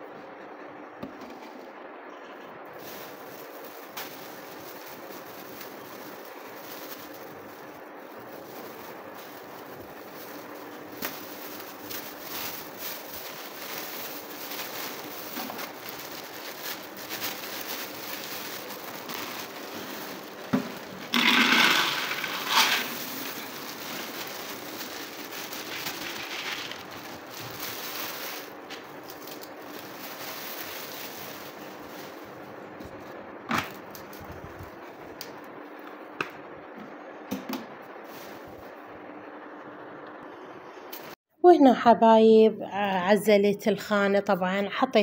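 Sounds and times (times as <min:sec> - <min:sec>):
plastic bag crinkling: 0:02.8 - 0:34.6
beans rattling into plastic jar: 0:16.8 - 0:28.5.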